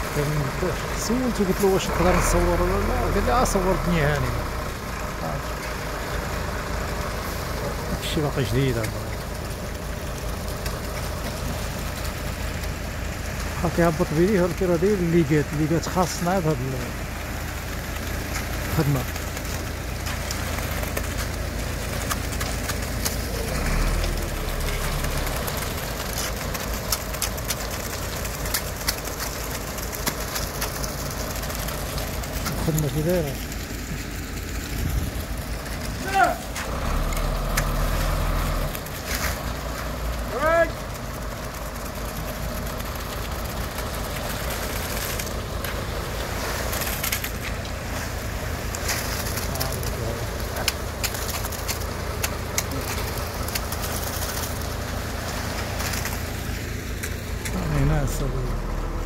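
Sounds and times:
truck engine rumble: 0.0 - 59.0
wet concrete pouring down chute: 0.0 - 59.0
scattered clicks: 18.3 - 34.0, 48.7 - 54.9.

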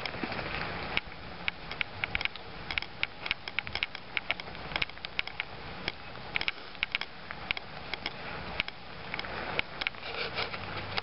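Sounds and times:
water dripping from trees: 0.0 - 10.0.

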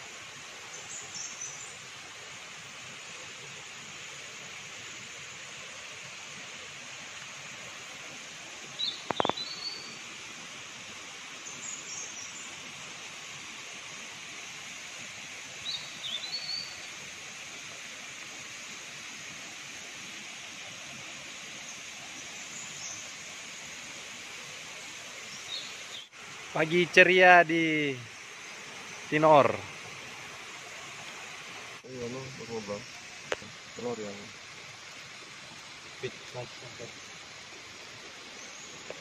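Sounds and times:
steady forest hiss: 0.0 - 39.0
short bird chirps: 8.8 - 10.0.

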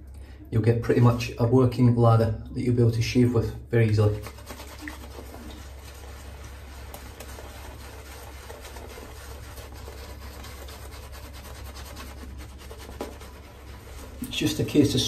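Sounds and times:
shaving brush rubbing lather: 4.0 - 15.0.

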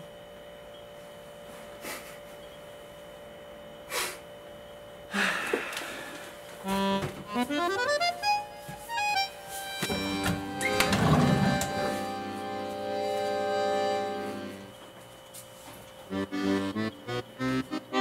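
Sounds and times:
comical accordion tune: 6.6 - 14.8, 16.1 - 18.0.

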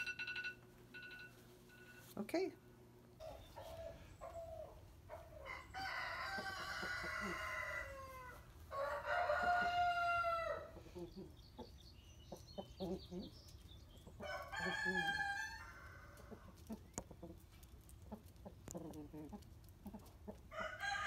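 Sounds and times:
rooster crowing: 5.4 - 10.7, 14.2 - 16.4, 20.5 - 21.0.

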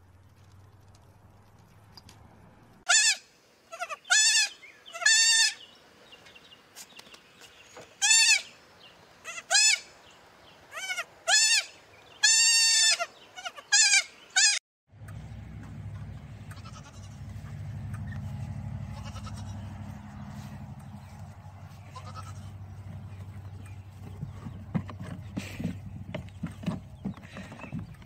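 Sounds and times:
baby goats bleating: 2.9 - 5.6, 8.0 - 8.5, 9.2 - 9.9, 10.7 - 14.6, 16.5 - 17.3, 18.9 - 19.7, 21.7 - 22.6.

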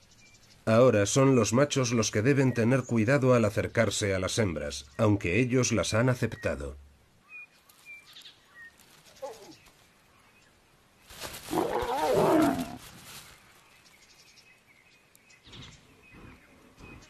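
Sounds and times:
lion growling: 11.5 - 12.8
lion snarling: 11.5 - 12.8.

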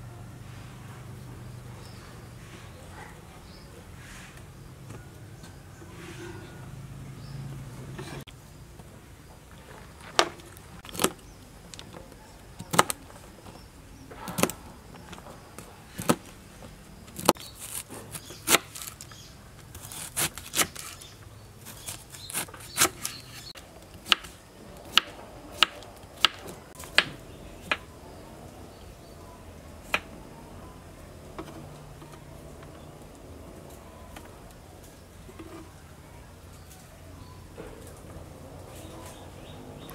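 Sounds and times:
knife chopping on wooden board: 22.3 - 27.8.

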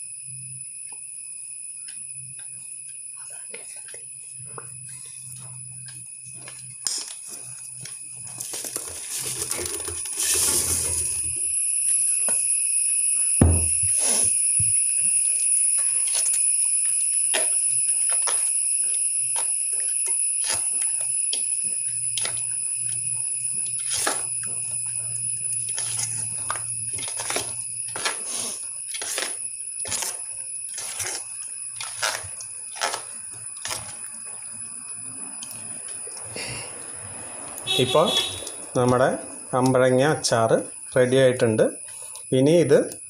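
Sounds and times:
steady high-pitched tone: 0.0 - 43.0.

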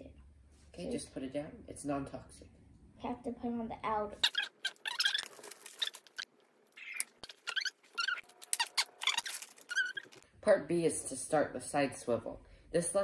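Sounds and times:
sped-up squeaky voices: 4.2 - 10.2.

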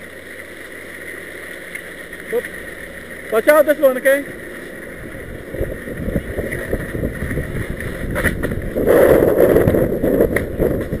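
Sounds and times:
skis scraping through slush: 0.0 - 11.0
wind on microphone: 5.0 - 11.0.

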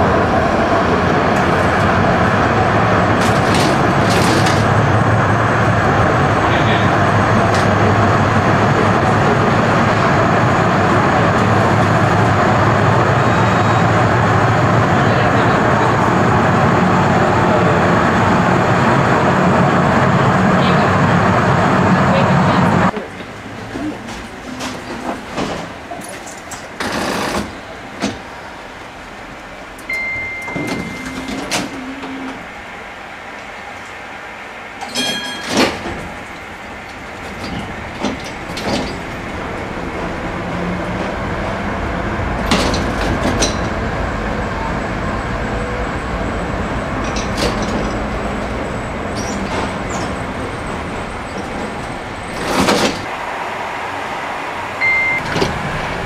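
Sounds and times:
tram rumbling along track: 0.0 - 56.0
short beep: 29.9 - 32.2, 54.8 - 55.3.

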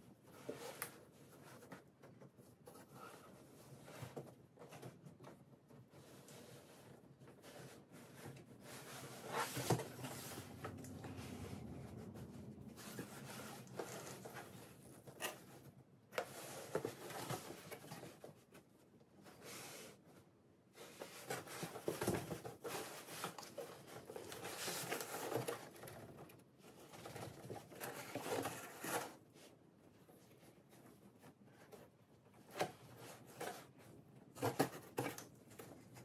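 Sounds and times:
cardboard box rustling and scraping: 5.9 - 18.5, 20.8 - 29.5.

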